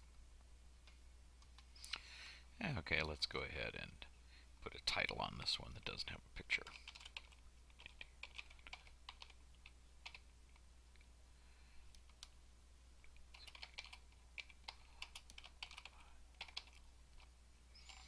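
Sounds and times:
low steady hum: 0.0 - 18.0
typing on computer keyboard: 6.8 - 10.2, 13.3 - 17.3.

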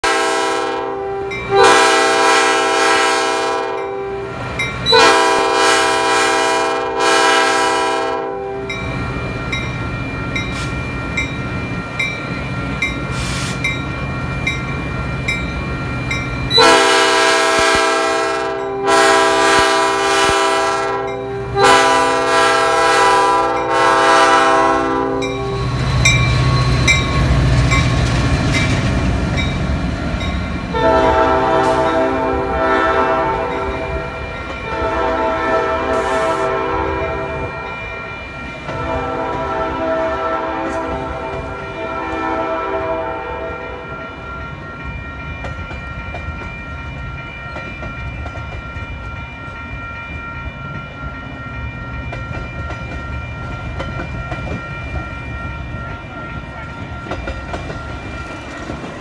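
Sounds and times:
locomotive air horn blasts: 0.0 - 4.3, 4.9 - 8.7, 16.5 - 25.6, 30.7 - 37.7, 38.7 - 44.0.

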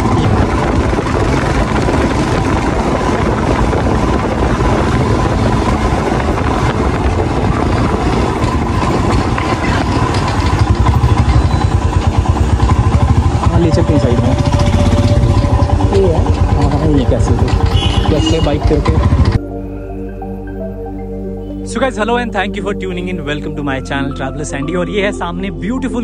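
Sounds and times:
steady rush of noise: 0.0 - 18.3
motorcycle engine running: 0.0 - 19.5.

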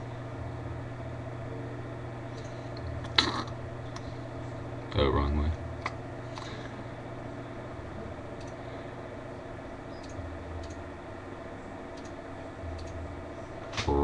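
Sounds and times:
steady low hum: 0.0 - 14.0
computer mouse clicks: 12.0 - 12.2.

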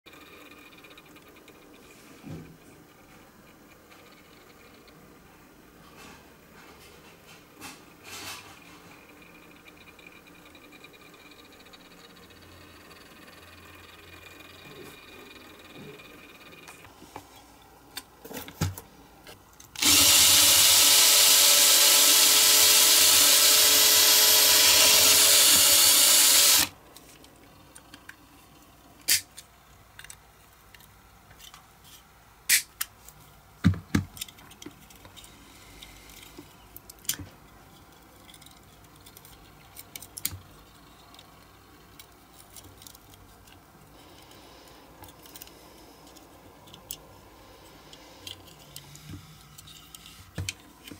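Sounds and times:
small electric drill running: 19.8 - 26.8.

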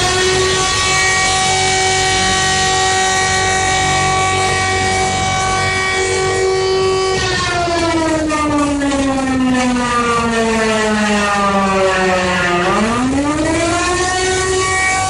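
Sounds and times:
alert alarm sliding horn tone: 0.0 - 15.0.

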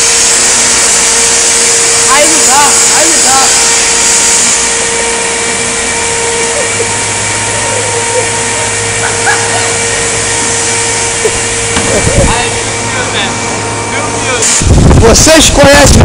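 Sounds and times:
deeper hum: 0.0 - 16.0
machinery hiss: 0.0 - 16.0
machinery hum: 0.0 - 16.0.

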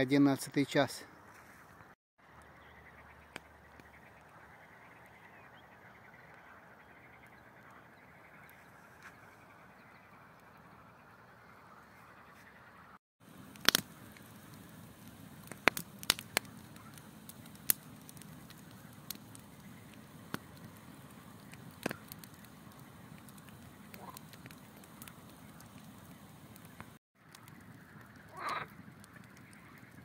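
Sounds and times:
campfire popping and crackling: 2.2 - 5.3, 13.2 - 30.0.

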